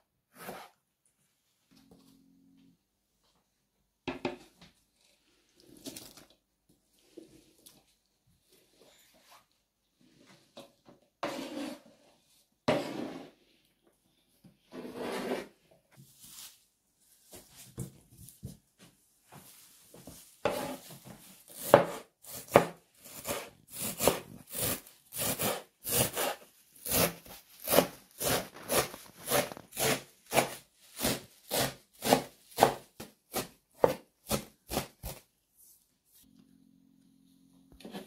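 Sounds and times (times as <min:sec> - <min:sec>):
knife chopping on wooden board: 0:21.6 - 0:35.2.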